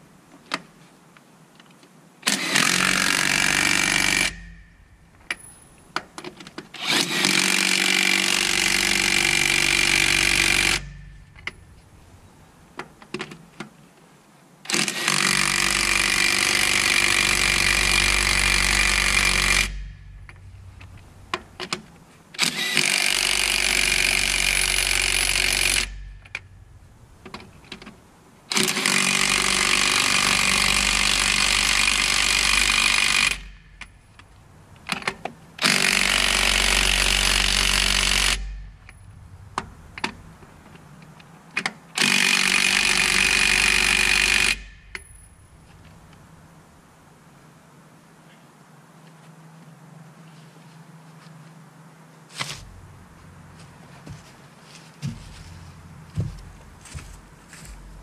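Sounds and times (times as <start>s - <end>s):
impact wrench hammering: 2.3s - 5.5s, 6.8s - 11.7s, 42.0s - 45.2s.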